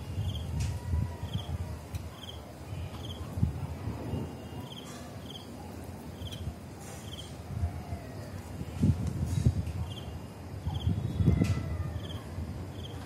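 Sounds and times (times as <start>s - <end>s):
crickets chirping: 0.0s - 0.5s, 2.1s - 3.3s, 4.0s - 7.4s, 9.8s - 13.0s.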